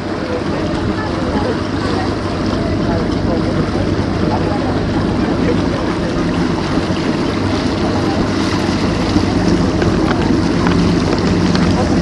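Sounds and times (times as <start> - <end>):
motor boat engine running: 0.0 - 12.0
wake water churning: 0.0 - 12.0.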